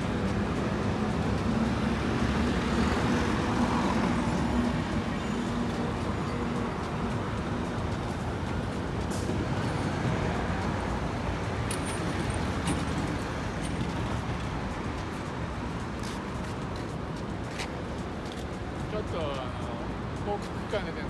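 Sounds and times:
street traffic noise: 0.0 - 21.0.

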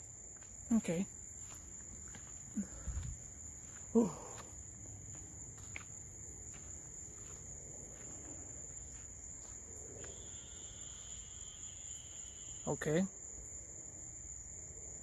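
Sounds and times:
night insects trilling: 0.0 - 15.0
footsteps through grass and leaves: 0.2 - 11.2.

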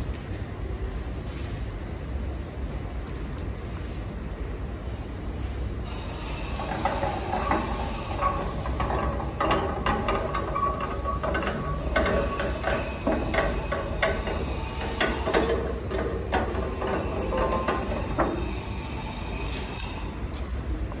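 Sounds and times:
metallic clicks and knocks: 6.7 - 18.3.

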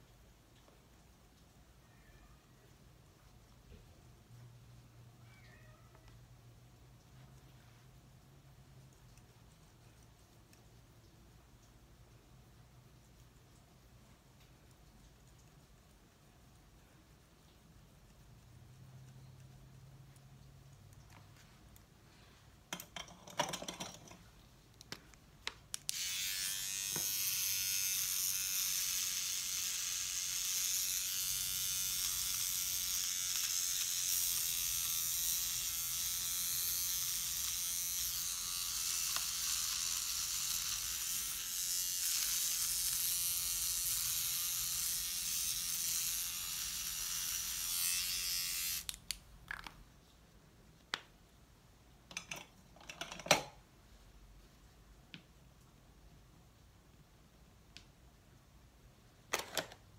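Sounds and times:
eyebrow trimmer buzzing: 25.9 - 49.0.

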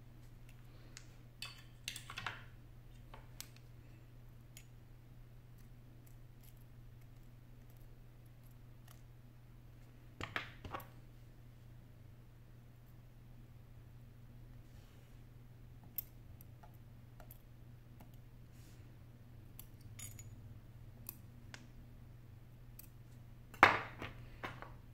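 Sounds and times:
screwdriver and tweezers clicking: 22.7 - 23.0.

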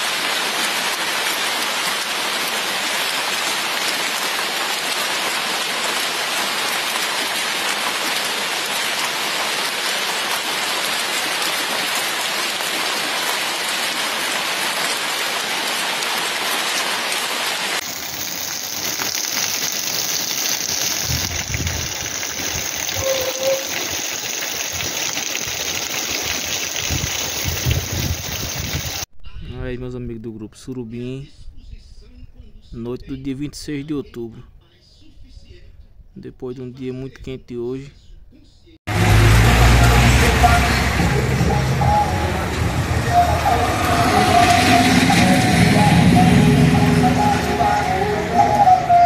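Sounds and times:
heavy rain on water: 0.0 - 29.1, 38.9 - 48.5
low rumbles: 38.9 - 48.7.

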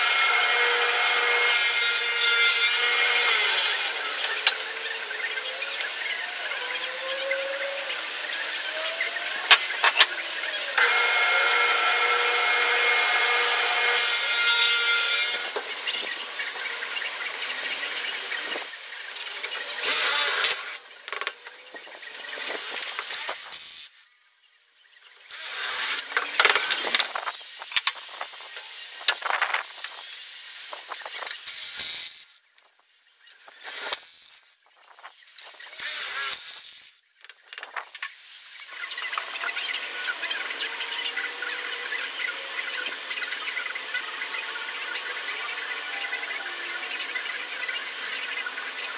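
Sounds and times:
cordless drill boring into wood: 0.0 - 4.5, 10.7 - 15.7, 19.4 - 21.3, 22.6 - 24.0, 25.2 - 32.4, 33.6 - 34.6, 35.6 - 37.0
table saw cutting wood: 0.0 - 24.1, 25.2 - 32.4, 33.5 - 34.6, 35.5 - 37.0.

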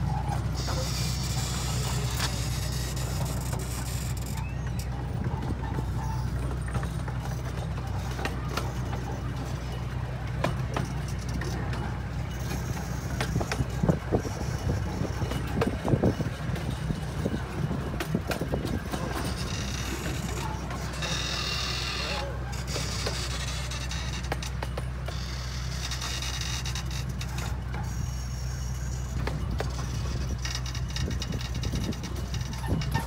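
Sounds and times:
miniature train rumbling: 0.0 - 33.0
wheels clicking on rails: 0.0 - 33.0
wind buffeting microphone: 13.1 - 20.7, 29.3 - 33.0.

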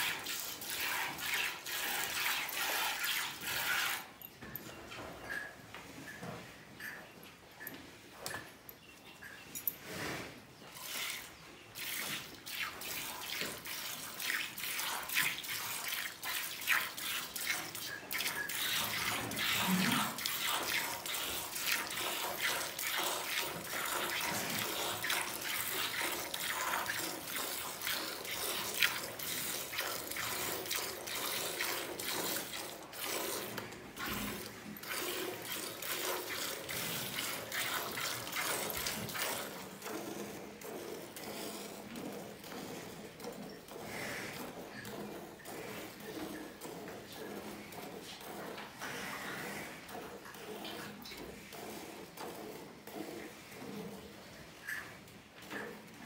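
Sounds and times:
milk squirting into a steel pail: 10.8 - 41.8.

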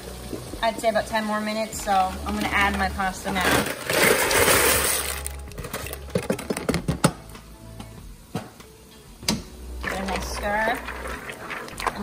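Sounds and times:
dry pasta pouring into water: 3.5 - 6.0, 9.8 - 12.0.

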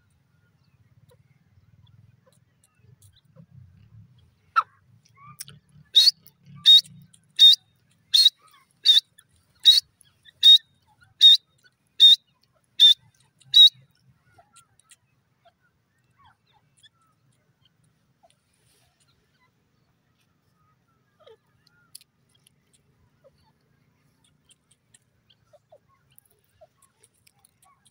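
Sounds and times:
francolin shrill calls: 4.6 - 13.8.

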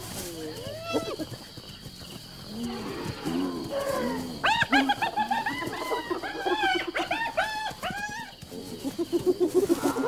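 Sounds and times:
hyenas squealing and whooping: 2.7 - 10.0
hyenas giggling: 4.5 - 7.7, 8.5 - 10.0.

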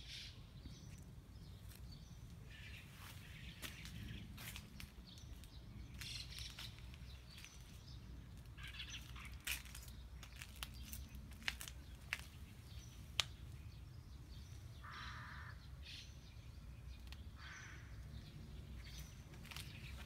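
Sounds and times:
crow cawing: 14.8 - 15.6, 17.4 - 18.0.

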